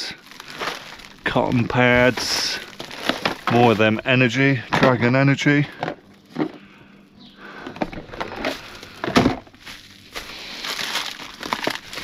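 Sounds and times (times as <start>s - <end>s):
products knocking and rustling: 0.2s - 4.0s, 4.7s - 5.1s, 5.7s - 6.6s, 7.6s - 12.0s.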